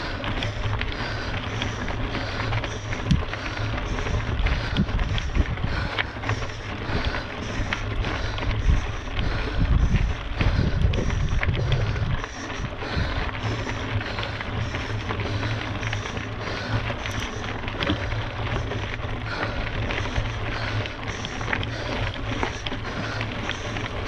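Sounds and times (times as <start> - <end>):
wind buffeting microphone: 3.0 - 17.0.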